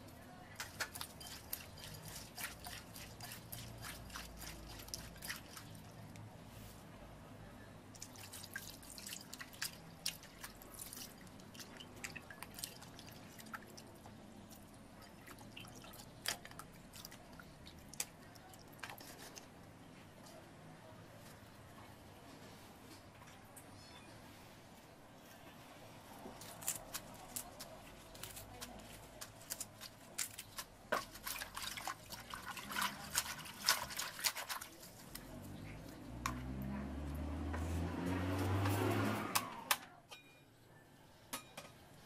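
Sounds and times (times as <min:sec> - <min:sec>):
small water splashes and drips: 0:00.6 - 0:06.2, 0:07.9 - 0:19.4, 0:30.2 - 0:37.6.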